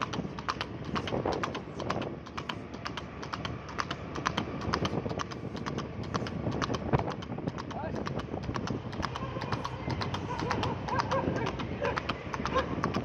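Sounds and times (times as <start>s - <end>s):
hooves clattering on pavement: 0.0s - 13.0s.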